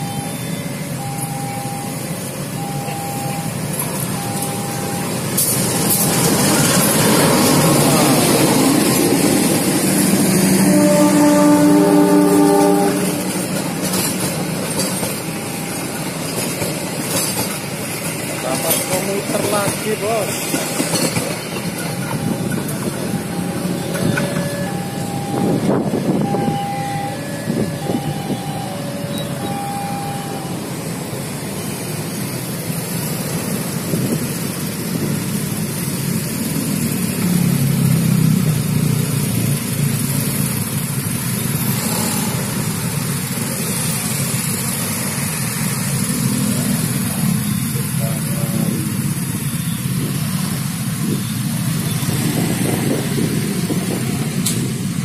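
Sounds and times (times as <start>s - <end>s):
two-tone crossing alarm beep: 0.0s - 6.6s, 15.3s - 16.0s, 21.8s - 30.6s, 46.2s - 50.5s
motorcycles and cars pulling away: 31.9s - 55.0s.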